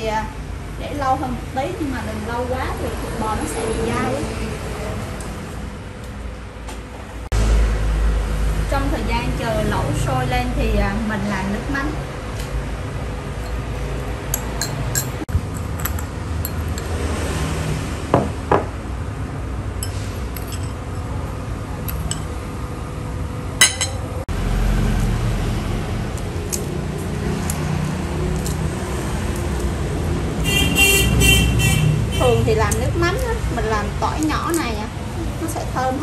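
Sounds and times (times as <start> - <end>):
metal spoon clinking glass bowl: 14.3 - 16.9, 19.8 - 20.8, 23.6 - 24.0.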